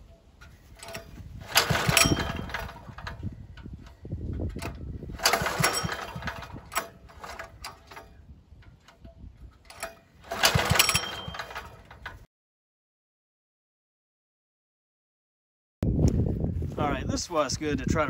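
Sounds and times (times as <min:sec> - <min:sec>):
diesel engine cranking: 0:00.0 - 0:12.3
recoil starter pull: 0:00.0 - 0:12.3.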